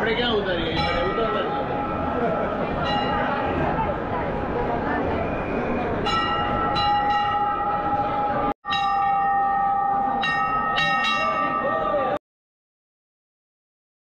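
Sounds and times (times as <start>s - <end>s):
temple bells ringing: 0.1s - 3.9s, 6.0s - 12.2s
crowd murmur: 0.8s - 8.5s.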